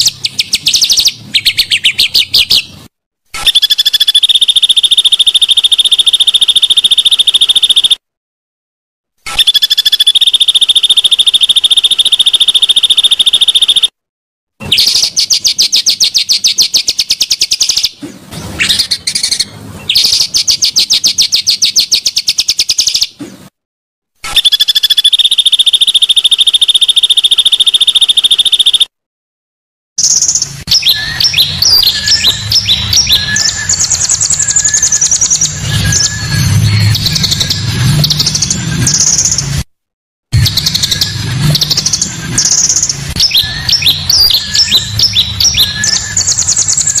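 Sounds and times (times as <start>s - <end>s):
bird chirping and whistling: 0.0s - 2.8s, 3.4s - 8.0s, 9.3s - 13.9s, 14.7s - 18.0s, 18.6s - 23.2s, 24.3s - 28.9s, 30.0s - 39.5s, 40.4s - 47.0s
buzzy high bird trills: 3.4s - 8.0s, 24.3s - 28.9s.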